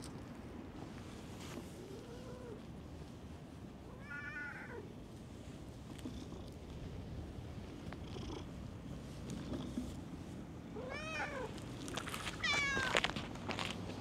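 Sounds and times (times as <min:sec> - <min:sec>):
cat meowing: 0:10.8 - 0:11.5, 0:12.4 - 0:13.0.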